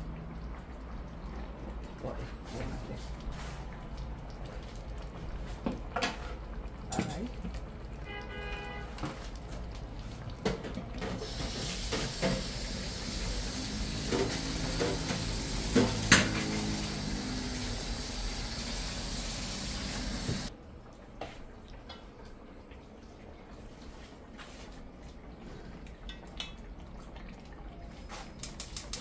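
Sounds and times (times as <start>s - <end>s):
tap water running into pot: 0.0s - 20.5s, 25.9s - 29.0s
pots and utensils clinking: 5.8s - 7.6s, 10.4s - 17.3s.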